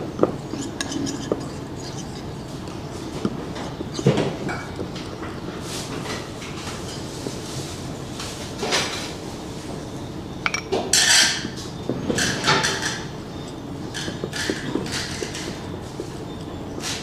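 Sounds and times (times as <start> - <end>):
whisk scraping and clinking bowl: 0.0 - 7.8, 12.2 - 17.0.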